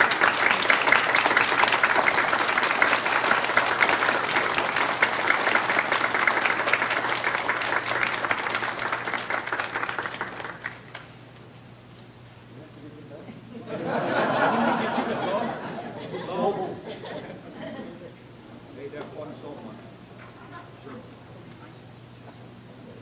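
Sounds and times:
audience applauding: 0:00.0 - 0:11.1.

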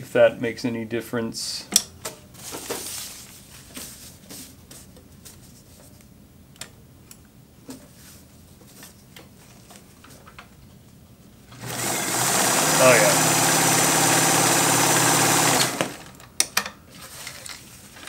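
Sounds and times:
fabric rustling: 0:02.4 - 0:05.9.

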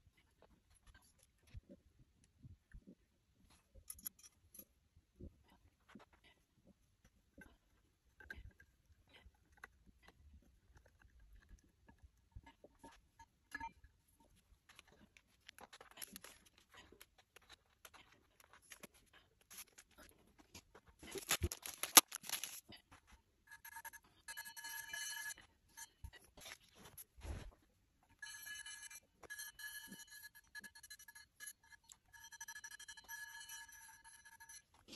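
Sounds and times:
paper rustling: 0:15.3 - 0:22.7
high ringing tone: 0:23.5 - 0:26.1, 0:28.2 - 0:34.8.

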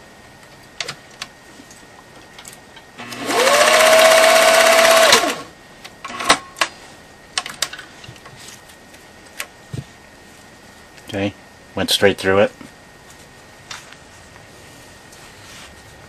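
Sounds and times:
sewing machine motor whine: 0:03.0 - 0:05.5.

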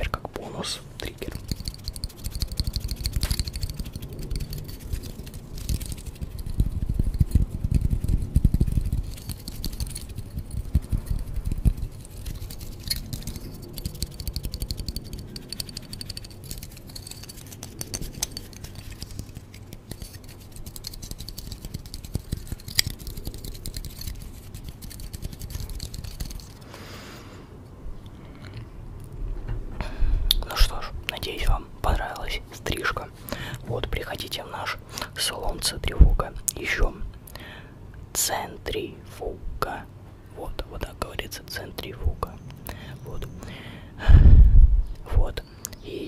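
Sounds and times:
low handling rumble: 0:44.0 - 0:45.0.

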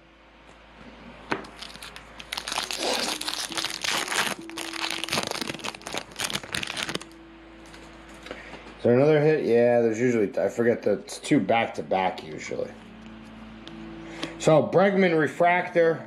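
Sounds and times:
foil wrapper tearing and crinkling: 0:01.4 - 0:07.1.

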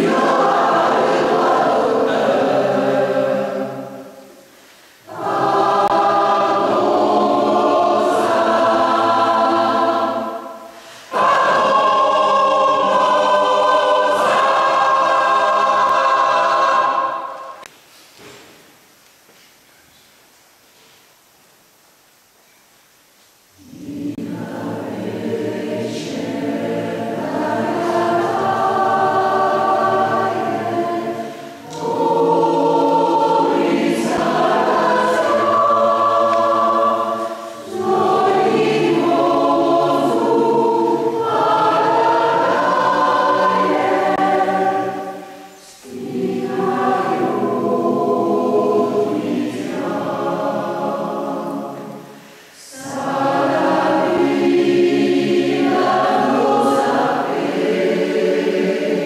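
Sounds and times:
choir singing sustained chords: 0:00.0 - 0:17.7, 0:23.5 - 0:59.0.

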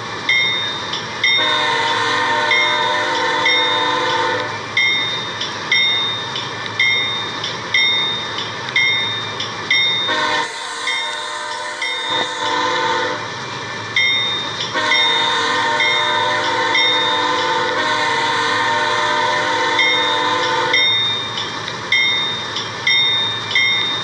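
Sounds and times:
train horn chord: 0:01.4 - 0:04.6, 0:10.1 - 0:13.3, 0:14.7 - 0:21.0.

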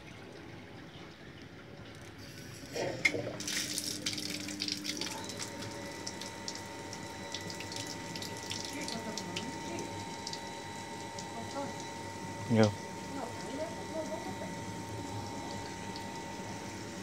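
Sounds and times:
water splashing onto tiled floor: 0:03.0 - 0:09.5.

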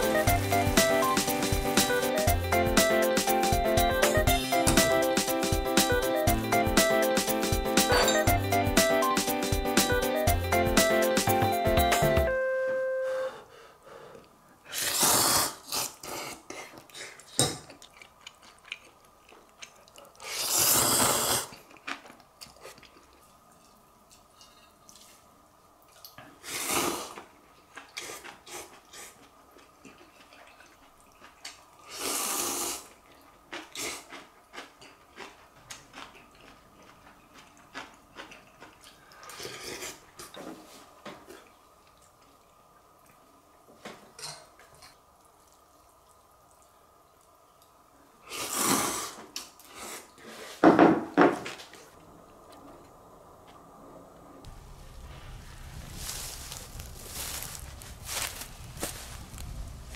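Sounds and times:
person slurping noodles: 0:14.7 - 0:17.3, 0:20.2 - 0:21.6, 0:26.4 - 0:27.2, 0:31.8 - 0:32.9, 0:33.6 - 0:34.1, 0:39.2 - 0:40.1, 0:48.2 - 0:50.6.

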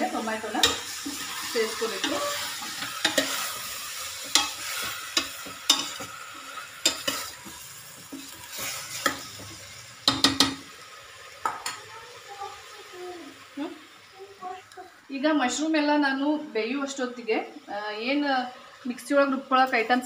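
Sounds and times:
frying sizzle: 0:00.0 - 0:20.0
utensil scraping metal pot: 0:00.4 - 0:10.6.

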